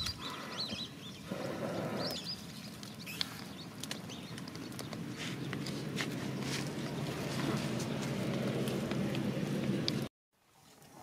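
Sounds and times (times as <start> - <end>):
small birds chirping: 0.0 - 10.8
dry twigs crackling: 2.1 - 10.1.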